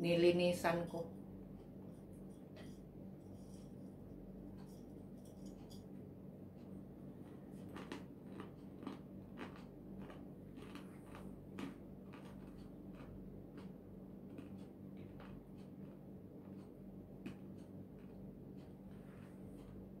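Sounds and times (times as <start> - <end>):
steady low hum: 0.0 - 20.0
person chewing crunchy food: 6.6 - 19.9.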